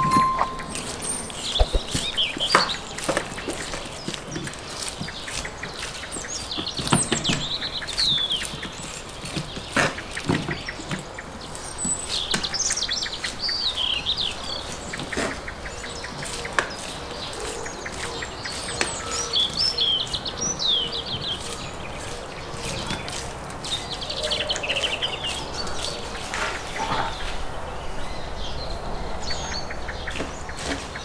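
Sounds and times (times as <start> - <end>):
songbirds chirping: 0.0 - 31.0
knife shaving meat: 0.8 - 10.4, 15.6 - 26.7
sharp knocks: 1.6 - 2.7.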